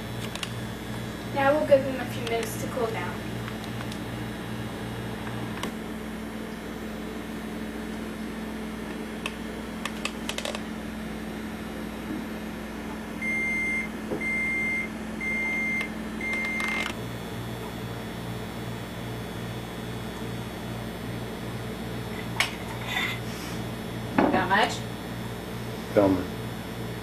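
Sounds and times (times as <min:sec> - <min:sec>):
microwave oven humming: 0:00.0 - 0:27.0
microwave clicks: 0:03.4 - 0:04.0, 0:08.9 - 0:10.7, 0:15.7 - 0:17.0
long high beeps: 0:13.2 - 0:16.9.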